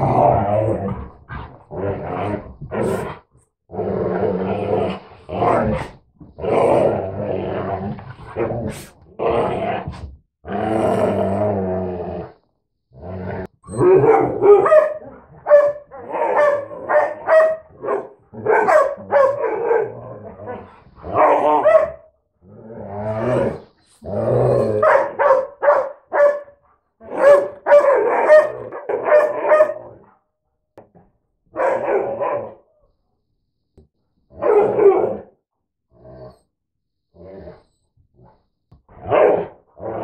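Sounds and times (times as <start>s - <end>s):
dogs growling: 0.0s - 15.4s, 16.0s - 25.1s
dogs barking: 13.8s - 20.0s, 21.1s - 22.1s, 24.8s - 29.9s, 31.5s - 32.6s, 34.4s - 35.1s.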